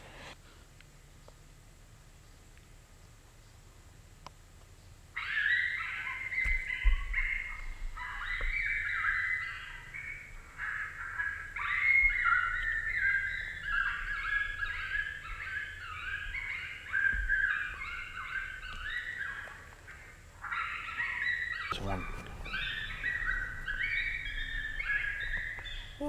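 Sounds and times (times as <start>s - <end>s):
high-pitched yelps from speaker: 5.2s - 19.5s.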